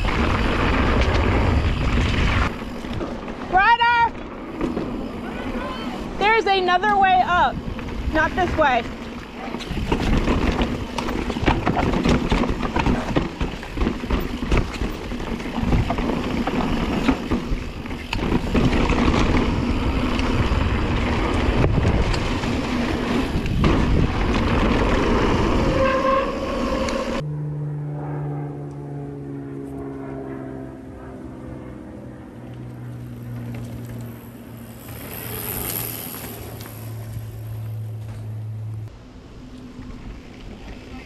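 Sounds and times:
wind noise on microphone: 0.0s - 3.2s, 9.6s - 27.2s
bike tyres rumbling over rock: 0.0s - 26.1s, 33.1s - 38.2s
bike knocking and rattling: 0.0s - 26.2s, 32.9s - 38.5s.

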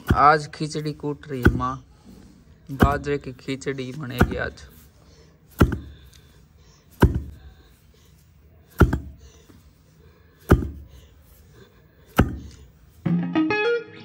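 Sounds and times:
metal pestle pounding in mortar: 0.0s - 1.9s, 2.7s - 3.5s, 4.1s - 4.7s, 5.5s - 6.2s, 7.0s - 7.4s, 8.8s - 9.2s, 10.4s - 10.9s, 12.1s - 12.6s.

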